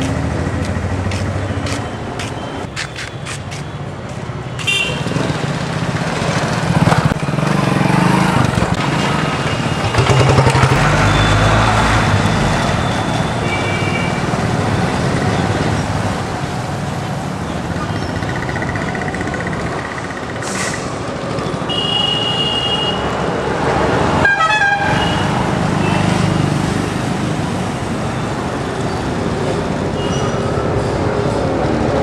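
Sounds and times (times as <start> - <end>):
vehicle horn toots: 4.6 - 5.2, 21.7 - 23.1, 24.2 - 25.4
motorcycle engine running: 9.8 - 10.9.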